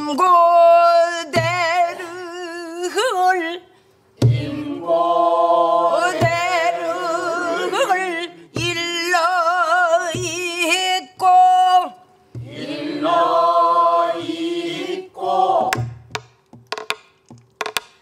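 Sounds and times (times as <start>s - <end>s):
woman singing with vibrato: 0.0s - 3.7s, 5.9s - 12.1s
barrel drum strokes: 4.2s - 4.6s, 6.0s - 6.7s
group singing: 4.2s - 10.3s, 12.4s - 16.0s.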